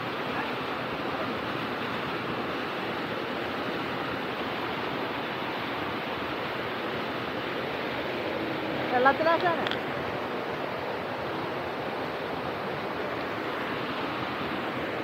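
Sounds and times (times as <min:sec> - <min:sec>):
small waterfall rushing: 0:00.0 - 0:15.0.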